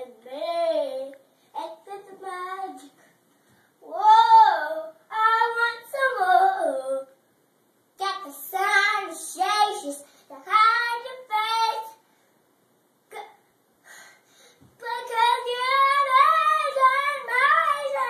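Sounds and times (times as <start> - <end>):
girl singing in high voice: 0.0 - 3.0, 3.8 - 7.2, 8.0 - 12.0, 14.8 - 18.0.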